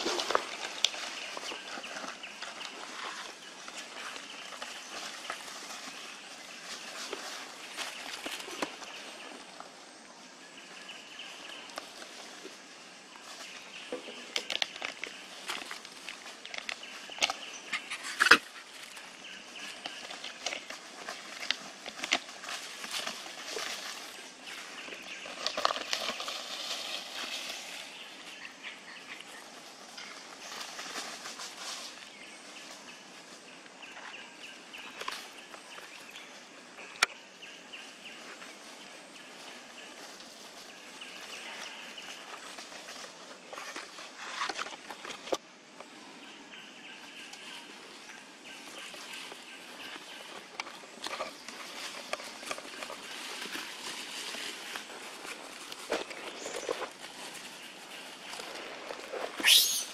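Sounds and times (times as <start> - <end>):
rustling of dry leaves: 0.0 - 59.9.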